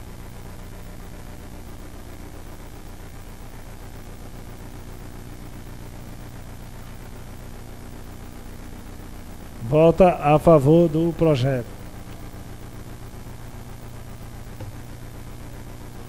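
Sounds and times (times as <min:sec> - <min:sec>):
constant hiss: 0:00.0 - 0:16.0
low hum: 0:09.2 - 0:16.0.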